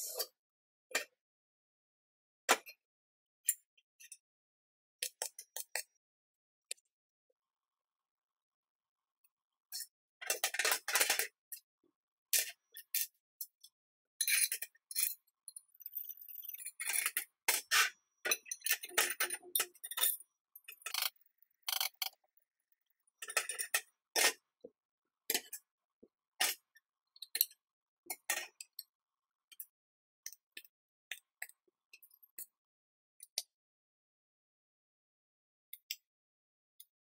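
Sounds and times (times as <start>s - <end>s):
metal parts clinking on workbench: 15.8s - 22.2s.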